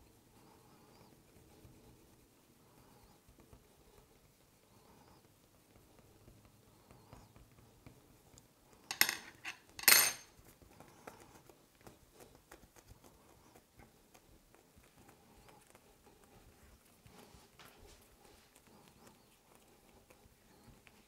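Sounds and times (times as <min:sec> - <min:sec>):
soft ticks and rustles: 0:00.0 - 0:08.9, 0:09.6 - 0:21.0
metal tool clattering on table: 0:08.9 - 0:10.3.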